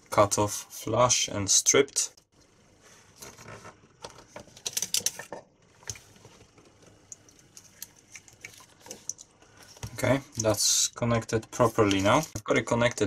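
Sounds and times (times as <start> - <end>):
clicks and rustles of handling plastic: 3.2 - 10.6, 11.3 - 13.0.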